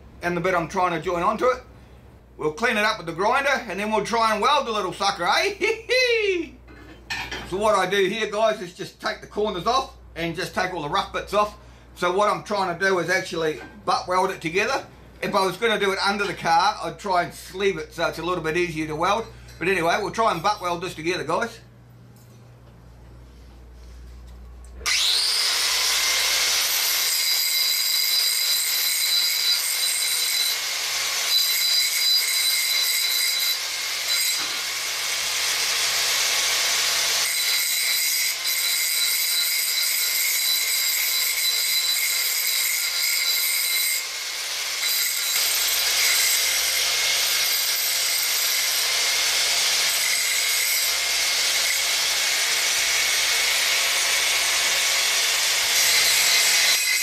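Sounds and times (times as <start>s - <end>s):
angle grinder grinding metal: 24.8s - 57.0s.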